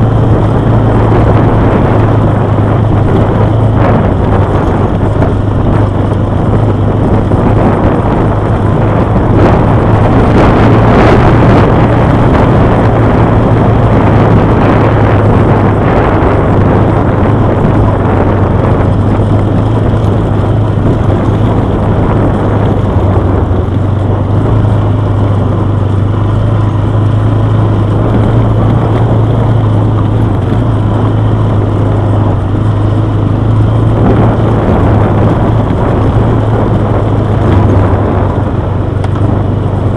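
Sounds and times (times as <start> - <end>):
quad bike engine running: 0.0 - 39.9
wind and tyre rushing noise: 0.0 - 39.9.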